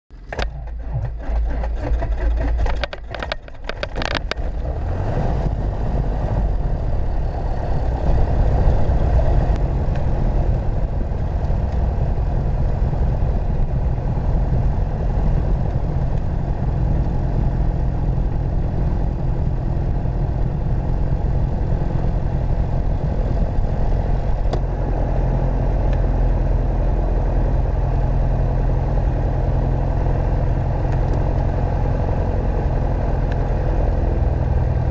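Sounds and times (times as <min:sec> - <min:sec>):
engine pops: 0:00.1 - 0:04.6
aircraft engine starting: 0:00.1 - 0:34.9
engine idling: 0:00.1 - 0:34.9.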